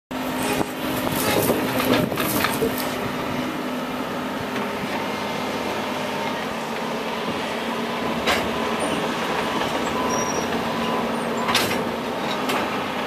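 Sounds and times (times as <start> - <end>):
diesel engine humming: 0.1 - 13.0.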